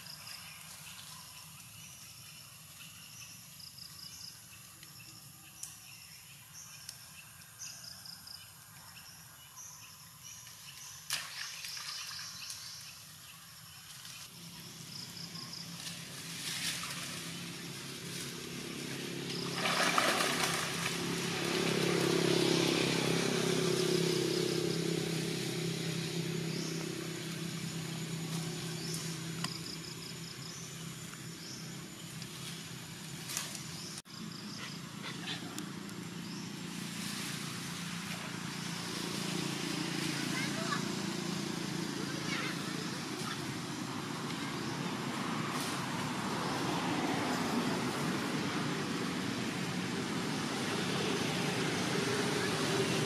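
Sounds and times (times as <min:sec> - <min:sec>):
high wildlife chirping: 0:00.0 - 0:48.4
vehicle engine humming: 0:14.2 - 0:53.0.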